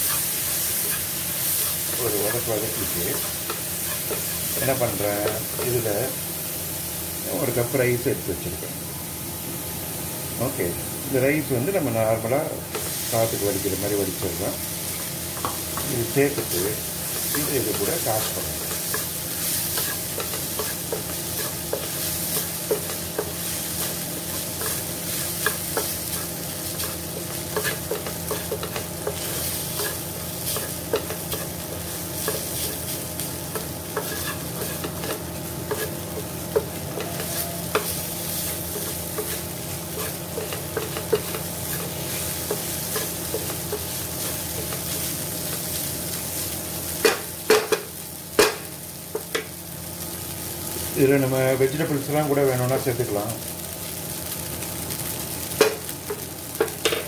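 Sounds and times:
rice sizzling in a frying pan: 0.0s - 57.0s
wooden spatula scraping a pan: 33.6s - 36.3s.

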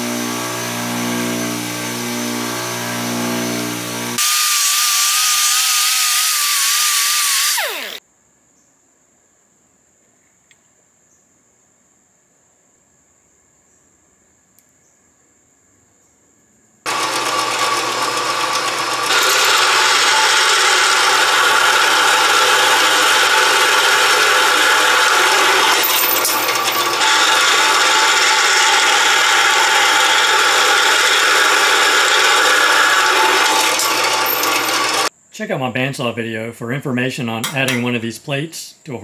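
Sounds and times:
bandsaw cutting metal: 0.0s - 8.0s, 16.9s - 35.1s.

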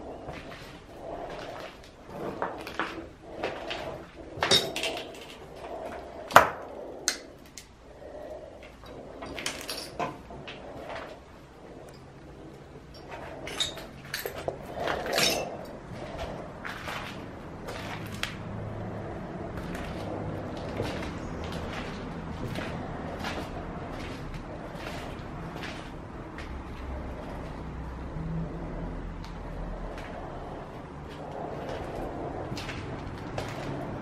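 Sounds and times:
objects knocking and clicking: 2.4s - 5.6s.

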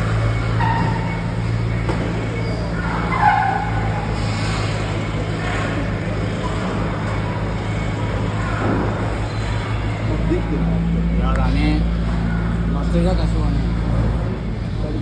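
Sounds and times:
faint voices: 0.0s - 15.0s
low machinery hum: 0.0s - 15.0s.

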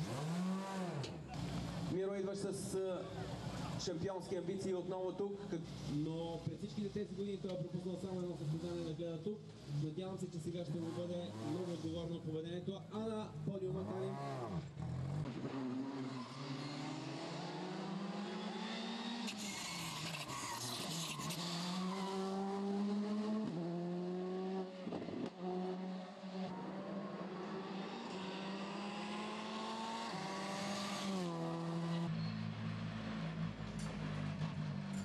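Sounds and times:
rally car engine revving: 0.0s - 2.0s, 7.8s - 12.2s, 13.4s - 32.2s.

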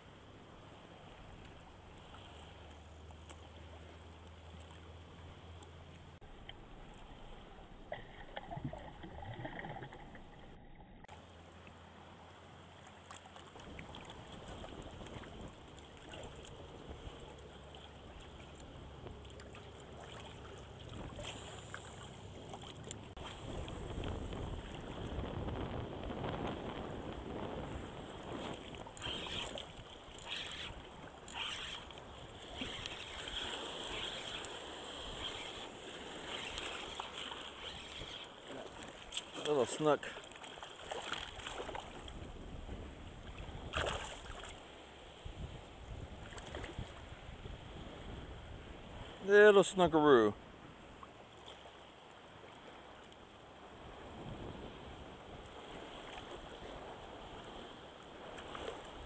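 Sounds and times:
small waves lapping: 0.0s - 59.0s
shallow water splashing: 5.7s - 11.7s, 12.7s - 26.7s, 27.3s - 42.5s, 43.2s - 44.9s
wind noise: 23.2s - 34.4s.

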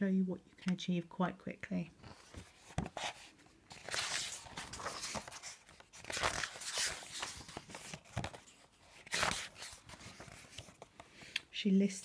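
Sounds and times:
paper pages rustling: 2.0s - 11.4s.

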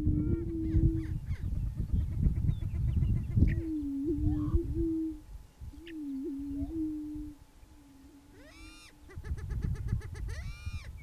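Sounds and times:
high whooping bird calls: 0.3s - 11.0s
low hollow hooting moans: 3.6s - 9.1s.

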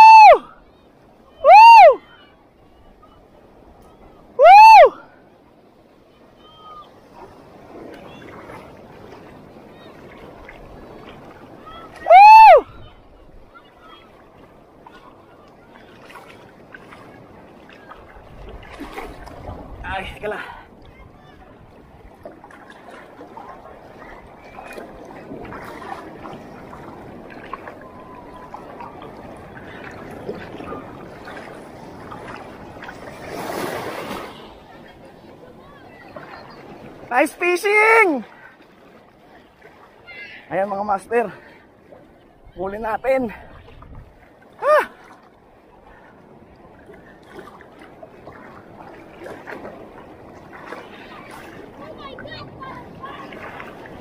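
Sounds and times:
seawater sloshing around legs: 5.8s - 54.0s
small splashes: 6.7s - 19.8s, 20.4s - 37.1s, 38.0s - 40.6s, 43.3s - 54.0s.

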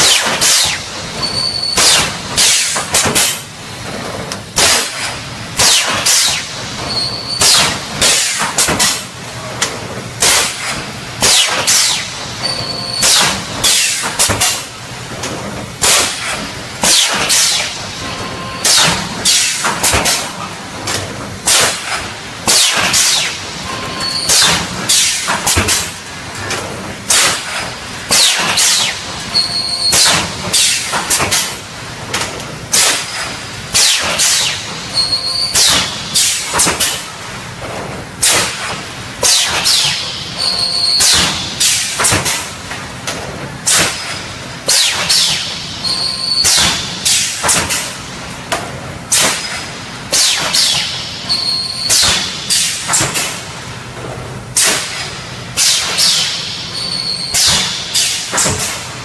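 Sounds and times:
welding machine bursts: 0.0s - 3.4s, 4.6s - 9.1s, 38.2s - 42.4s
mechanical background noise: 0.0s - 59.0s.

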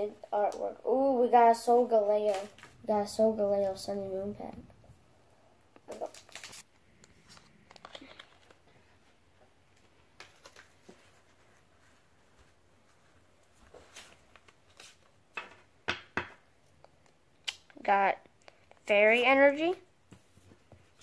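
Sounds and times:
trading cards clicking and rustling: 5.8s - 8.7s.

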